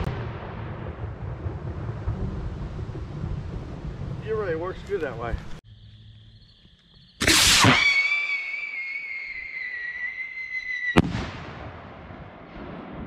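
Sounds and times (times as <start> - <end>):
rocket bursting bang: 0.0 - 4.2, 7.2 - 8.9, 10.8 - 13.0
shrill rocket whistle: 7.2 - 11.4
rocket launch rush: 7.2 - 13.0.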